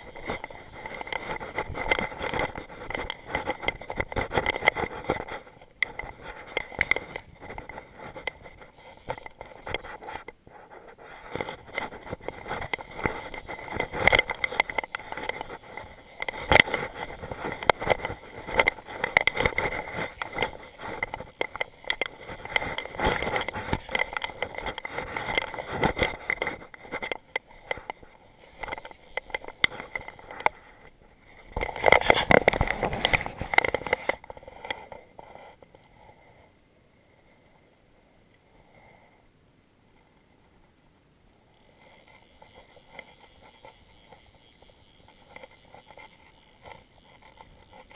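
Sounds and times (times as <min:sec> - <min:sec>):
fishing reel drag clicking: 0:00.0 - 0:10.4, 0:11.1 - 0:30.7, 0:41.5 - 0:47.9
scraping: 0:00.0 - 0:35.4, 0:41.6 - 0:47.9.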